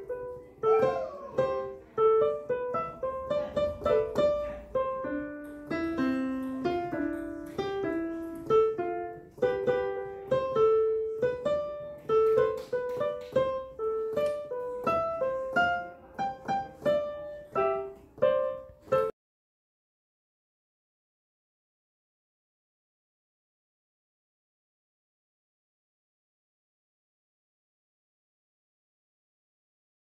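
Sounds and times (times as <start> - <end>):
piano melody: 0.0 - 19.2.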